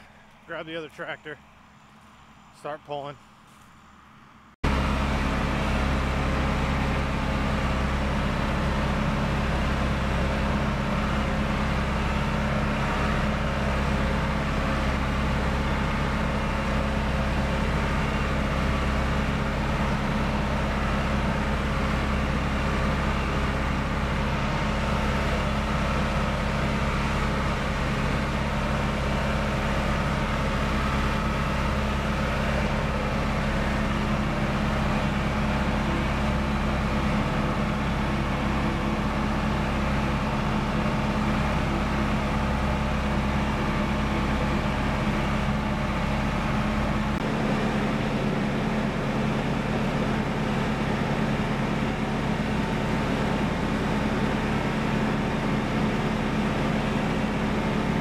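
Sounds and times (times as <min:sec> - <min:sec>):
tractor engine droning: 0:00.0 - 0:58.0.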